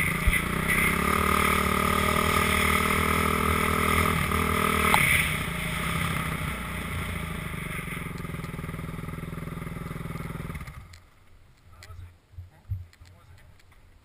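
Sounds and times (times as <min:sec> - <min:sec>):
dirt bike engine running: 0:00.0 - 0:11.1.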